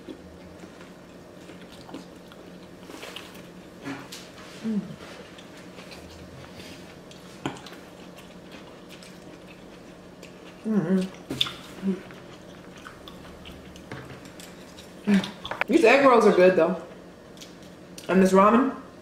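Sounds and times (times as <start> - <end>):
chewing crispy food: 0.0 - 4.4, 5.0 - 15.7.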